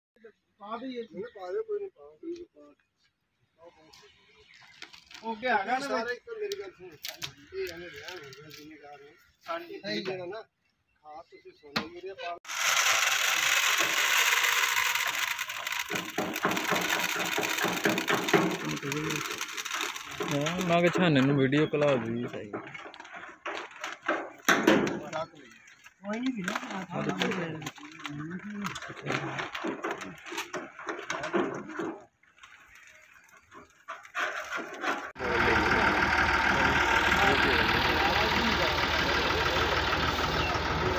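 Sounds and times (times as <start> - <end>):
planter mechanism clicking: 12.5 - 22.0
tractor diesel engine running: 35.1 - 40.9.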